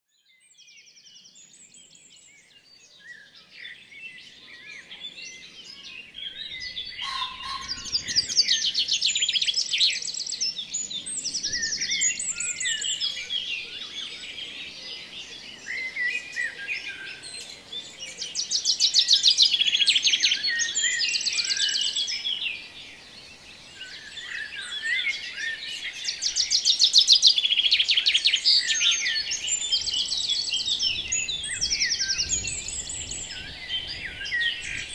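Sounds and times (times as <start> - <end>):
songbirds chirping and trilling: 0.1 - 34.9
soft outdoor hiss: 7.9 - 34.9.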